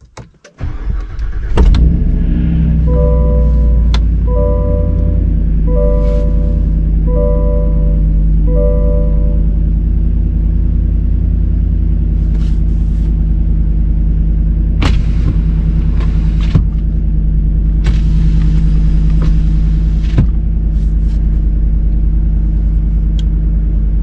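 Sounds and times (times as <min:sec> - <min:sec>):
engine idling: 0:00.6 - 0:24.0.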